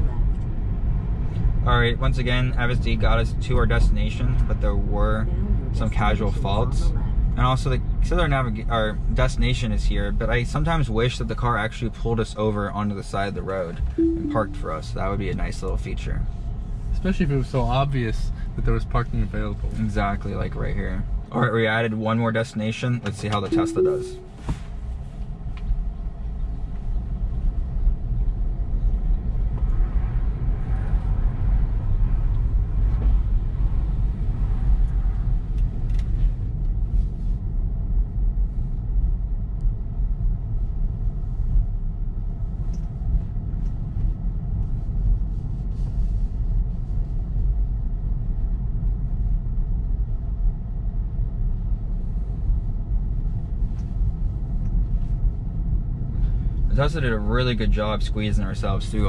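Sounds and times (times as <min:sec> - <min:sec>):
road and tyre rumble: 0:00.0 - 0:14.0, 0:14.8 - 0:23.5, 0:24.5 - 0:59.0.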